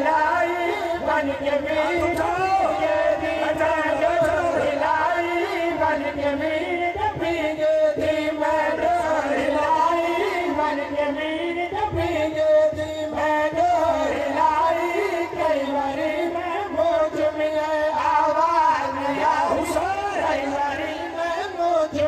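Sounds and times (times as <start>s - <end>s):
man chanting a lament: 0.0s - 22.0s.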